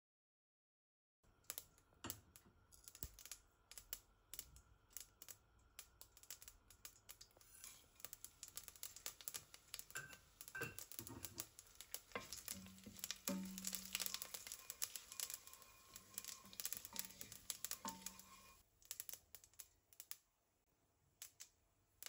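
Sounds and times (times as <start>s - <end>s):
seeds popping in hot oil: 1.3s - 20.5s, 21.1s - 22.0s
wooden spoon stirring: 6.7s - 18.6s.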